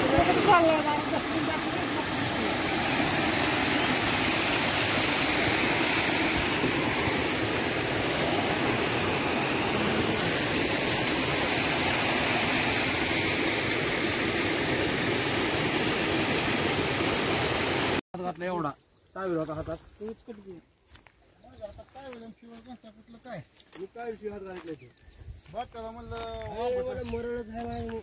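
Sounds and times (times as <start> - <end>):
water rushing over weir: 0.0 - 18.0.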